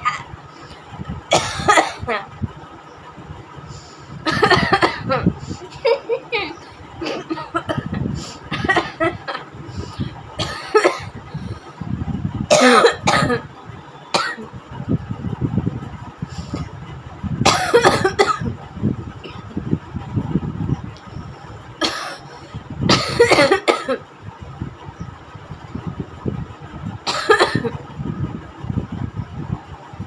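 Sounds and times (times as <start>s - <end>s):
woman coughing: 1.3s - 2.2s, 4.3s - 5.3s, 6.4s - 7.9s, 8.5s - 9.2s, 10.4s - 11.2s, 12.5s - 13.5s, 14.2s - 14.4s, 17.4s - 18.5s, 21.8s - 22.2s, 22.9s - 24.0s, 27.1s - 27.8s.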